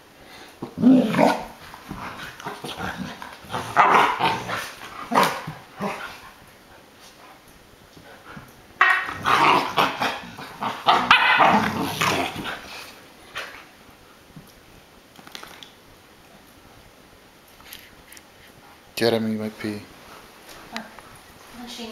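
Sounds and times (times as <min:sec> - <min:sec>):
dogs growling: 0:00.6 - 0:06.4, 0:08.8 - 0:13.6
dogs barking: 0:02.5 - 0:06.2, 0:08.8 - 0:12.4.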